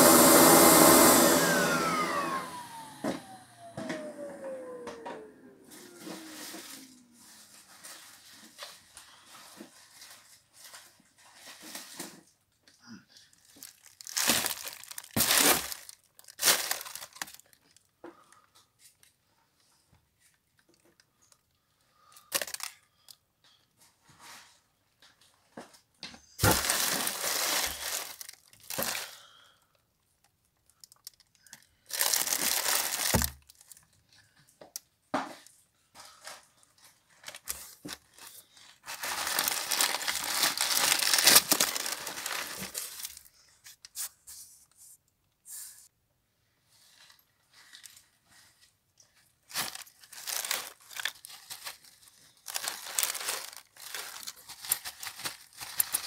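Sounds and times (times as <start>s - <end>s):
plastic bags and paper crinkling: 5.6s - 12.5s, 13.2s - 19.1s, 20.2s - 23.2s, 26.4s - 29.5s, 30.2s - 34.5s, 35.4s - 44.4s, 46.8s - 56.0s
dust and debris rustling out: 26.4s - 29.1s, 38.8s - 43.3s.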